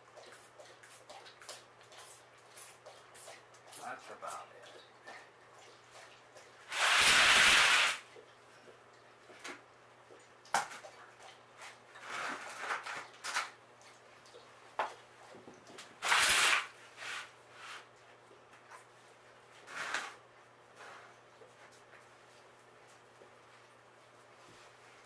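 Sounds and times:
spray bottle misting: 6.7 - 8.0.

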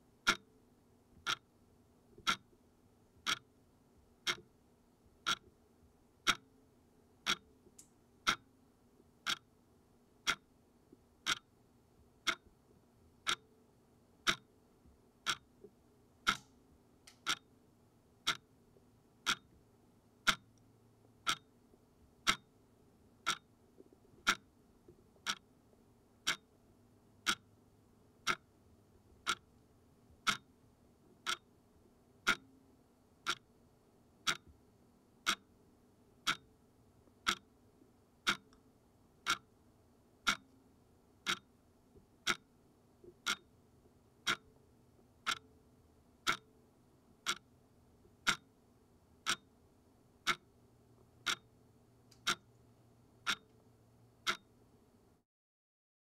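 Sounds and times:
analog clock ticking: 0.2 - 0.5, 1.2 - 1.5, 2.2 - 2.5, 3.2 - 3.5, 4.2 - 4.5, 5.2 - 5.4, 6.2 - 6.5, 7.2 - 7.4, 8.2 - 8.5, 9.2 - 9.4, 10.2 - 10.4, 11.2 - 11.5, 12.2 - 12.4, 13.2 - 13.4, 14.2 - 14.5, 15.2 - 15.5, 16.2 - 16.5, 17.1 - 17.5, 18.2 - 18.4, 19.2 - 19.5, 20.2 - 20.6, 21.2 - 21.5, 22.2 - 22.5, 23.2 - 23.5, 24.2 - 24.5, 25.2 - 25.4, 26.2 - 26.4, 27.2 - 27.5, 28.2 - 28.5, 29.2 - 29.4, 30.2 - 30.5, 31.2 - 31.4, 32.2 - 32.6, 33.2 - 33.4, 34.2 - 34.5, 35.2 - 35.5, 36.2 - 36.5, 37.2 - 37.5, 38.2 - 38.6, 39.2 - 39.5, 40.2 - 40.6, 41.2 - 41.5, 42.2 - 42.5, 43.2 - 43.5, 44.2 - 44.5, 45.2 - 45.5, 46.2 - 46.5, 47.2 - 47.5, 48.2 - 48.5, 49.2 - 49.5, 50.2 - 50.5, 51.2 - 51.6, 52.2 - 52.6, 53.2 - 53.6, 54.2 - 54.6.

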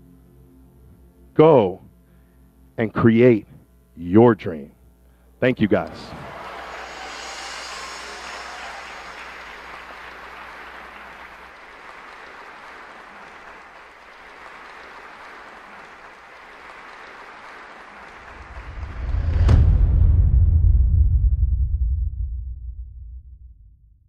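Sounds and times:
audience applauding: 5.8 - 19.6.

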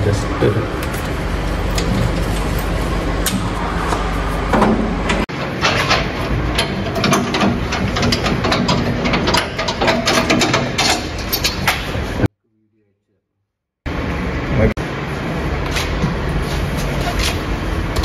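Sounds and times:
engine running: 0.0 - 10.8
sharp clicks and knocks: 3.2 - 12.0.

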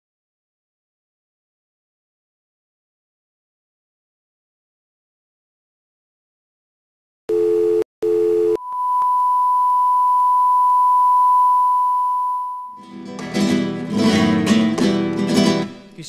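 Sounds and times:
short buzzy beep: 7.3 - 12.8
high-pitched test tone: 8.5 - 12.8
acoustic guitar music: 12.8 - 16.0.

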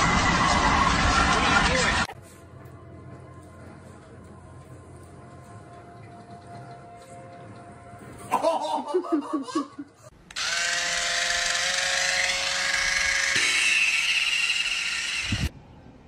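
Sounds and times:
small motor whirring: 10.3 - 15.5.

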